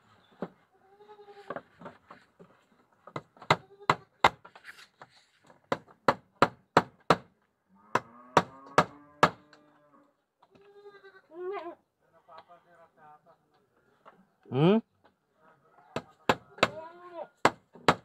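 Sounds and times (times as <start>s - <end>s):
goats bleating: 10.6s - 11.8s.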